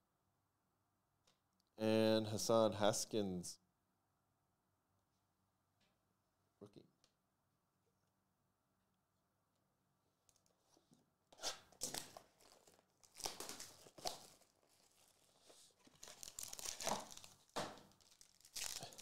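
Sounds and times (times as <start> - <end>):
wrapper tearing and crinkling: 11.8 - 19.0.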